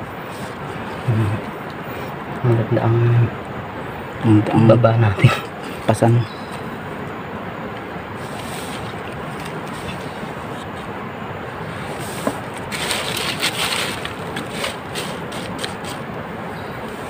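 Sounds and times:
steady background hiss: 0.0 - 17.0
dry leaves and twigs rustling: 8.2 - 10.9, 11.6 - 16.7
scuffle on forest floor: 11.6 - 16.1.

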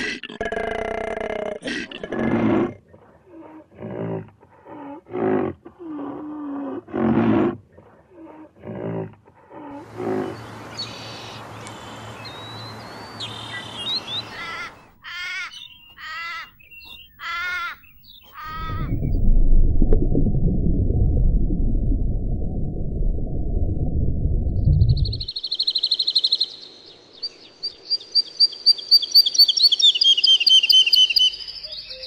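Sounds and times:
outdoor hiss: 9.8 - 14.4
bird chirps: 10.2 - 18.8, 24.9 - 32.0.

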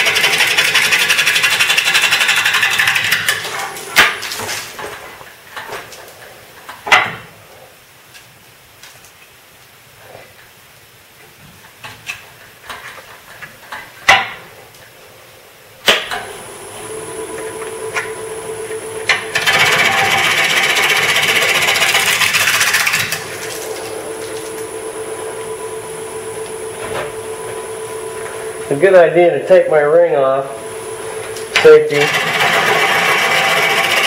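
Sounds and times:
wood lathe motor humming: 0.0 - 3.2, 16.2 - 34.0
gouge cutting wood: 19.1 - 23.8, 31.5 - 34.0.

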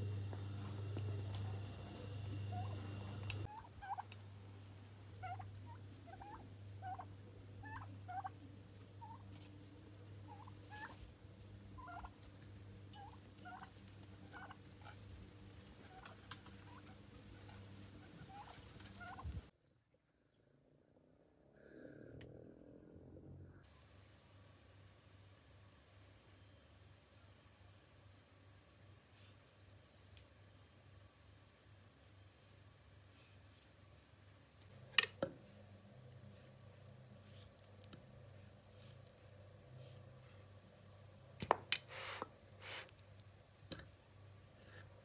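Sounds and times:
low steady hum: 0.0 - 45.0
turkeys calling: 0.3 - 9.5, 10.2 - 11.0, 11.8 - 12.3, 13.0 - 19.5.

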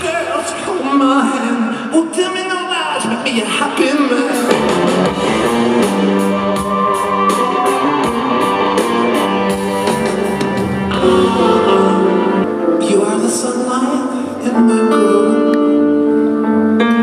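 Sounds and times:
electric guitars: 4.0 - 17.0
drum kit with cymbal hits: 4.3 - 12.5.

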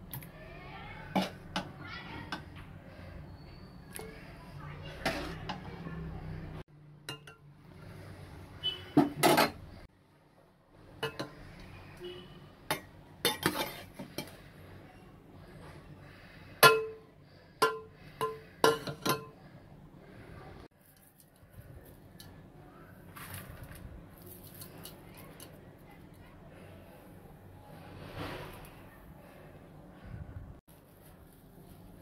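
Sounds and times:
metal spoon striking metal pot: 16.6 - 17.0, 17.6 - 19.4.

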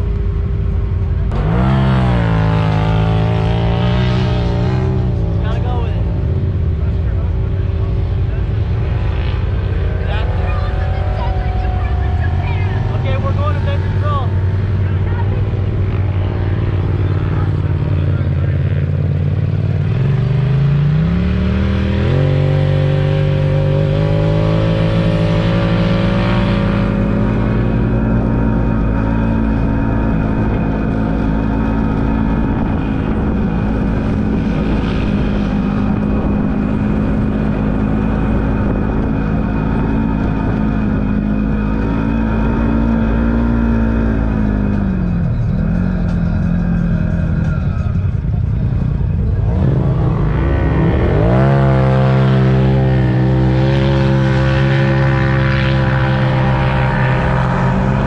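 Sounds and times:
off-road vehicle engine revving: 0.0 - 58.0
tyres on dirt trail: 0.0 - 58.0.

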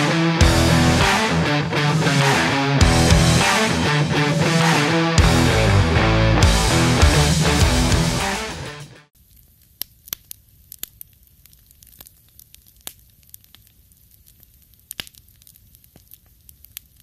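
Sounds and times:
campfire crackling and popping: 9.2 - 17.0.

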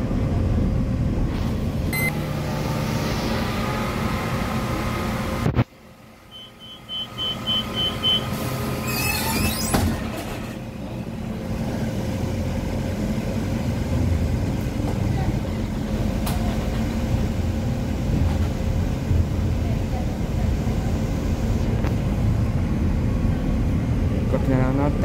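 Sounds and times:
bus engine and road rumble: 0.0 - 25.0
short high beeps: 1.9 - 2.2, 6.3 - 8.3.

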